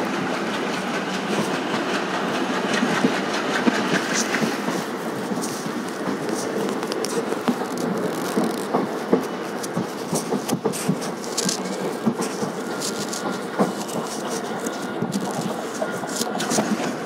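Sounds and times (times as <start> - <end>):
train wheels rumbling on rails: 0.0 - 17.0.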